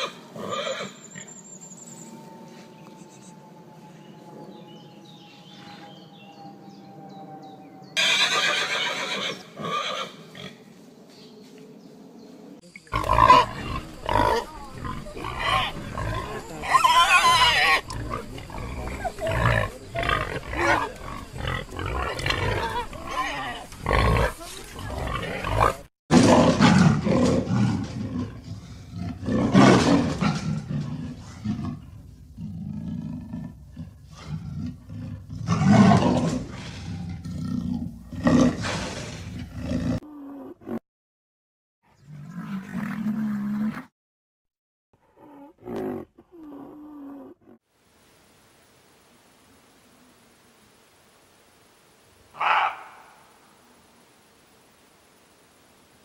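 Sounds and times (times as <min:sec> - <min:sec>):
wild boar grunting: 0:12.9 - 0:40.8.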